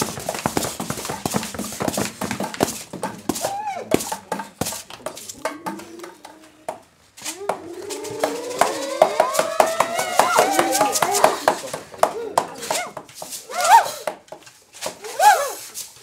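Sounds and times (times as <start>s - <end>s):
taps on homemade percussion: 0.0s - 13.4s
wavering gliding pitched sounds: 7.3s - 11.4s.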